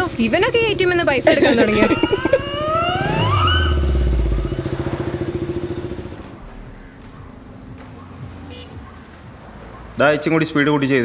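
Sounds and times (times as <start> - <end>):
motorcycle engine pulling away: 0.6 - 7.5.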